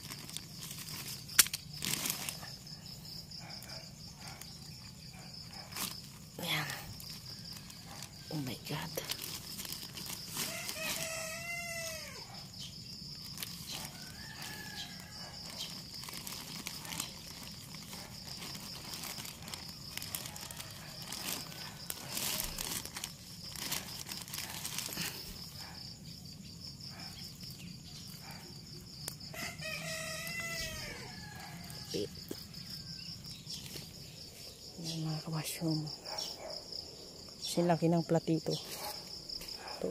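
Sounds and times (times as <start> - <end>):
high insect trill: 0.0 - 39.9
rooster crowing: 10.4 - 12.5, 13.7 - 15.7, 20.2 - 21.7, 29.2 - 33.0.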